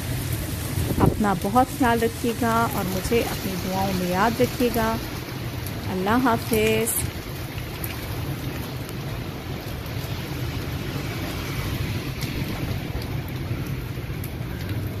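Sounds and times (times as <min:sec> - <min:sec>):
heavy rain pouring: 0:00.0 - 0:15.0
low rumble: 0:11.4 - 0:15.0.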